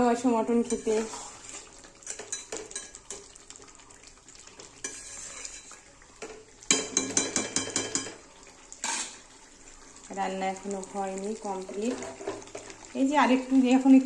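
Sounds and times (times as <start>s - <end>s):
faint frying sizzle: 0.0s - 14.0s
metal spatula scraping pan: 0.6s - 3.3s, 4.8s - 5.8s, 8.8s - 9.3s, 11.8s - 12.7s.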